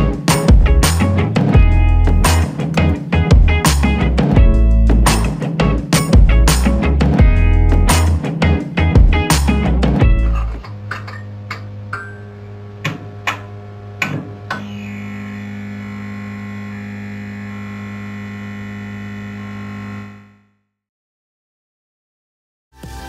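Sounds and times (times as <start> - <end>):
music track: 0.0 - 14.5, 22.8 - 23.0
low synthesizer drone: 9.0 - 20.6.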